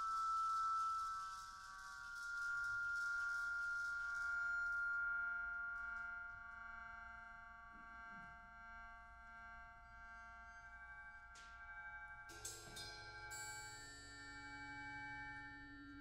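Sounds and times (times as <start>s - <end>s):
high hiss-like shimmer: 0.0s - 6.3s
ringing metallic percussion chord: 12.3s - 16.0s.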